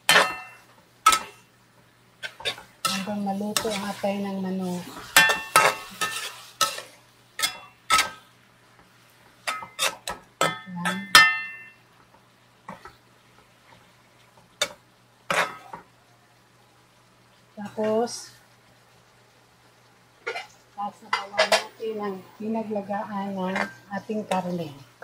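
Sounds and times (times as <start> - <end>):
metal ladle clanking in a wok: 0.1 - 1.4, 5.2 - 8.2, 9.5 - 11.7.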